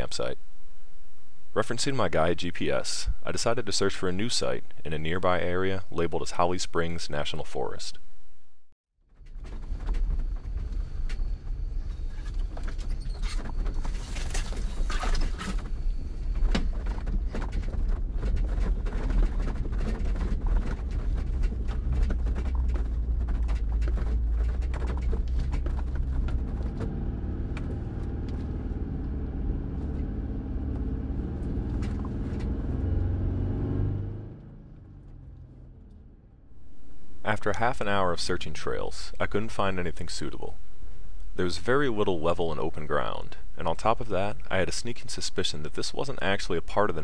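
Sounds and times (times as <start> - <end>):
engine and tyre rumble: 9.1 - 37.2
sharp clicks and knocks: 12.2 - 29.2.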